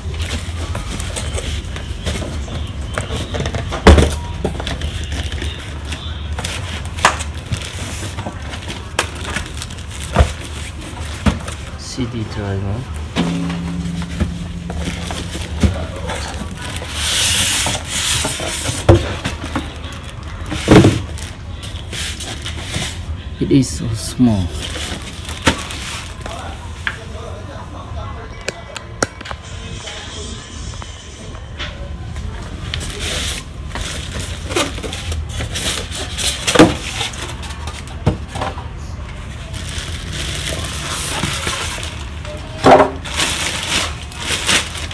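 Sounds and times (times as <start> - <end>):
plastic rustling: 0.0 - 23.1, 24.2 - 26.7, 32.4 - 38.4, 39.2 - 44.9
packing scraping against cardboard: 14.8 - 19.8
foam packing squeaking: 15.0 - 23.1, 43.0 - 44.9.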